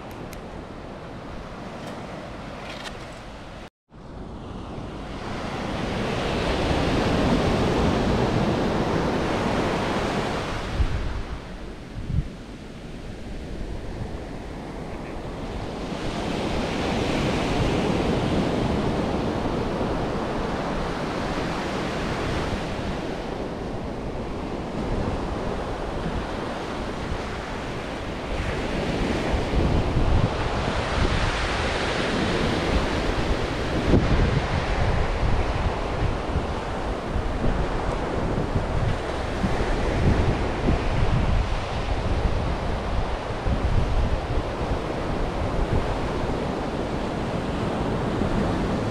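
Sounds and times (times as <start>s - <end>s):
ocean surf breaking: 0.0s - 11.8s, 12.9s - 48.9s
wind buffeting microphone: 0.0s - 48.9s.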